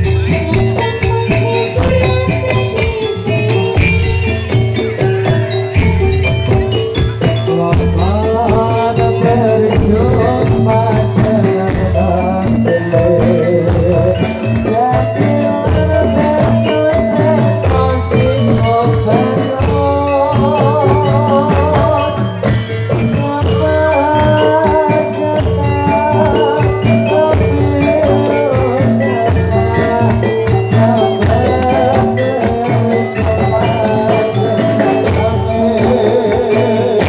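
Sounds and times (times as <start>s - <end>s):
drum strokes: 0.0s - 37.0s
metallophones ringing melody: 0.0s - 37.0s
warbling melody line: 0.0s - 37.0s.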